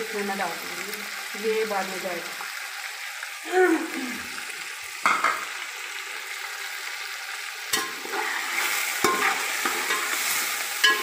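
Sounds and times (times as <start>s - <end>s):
chicken sizzling in hot oil: 0.0s - 11.0s
spoon scraping metal pot: 7.8s - 11.0s.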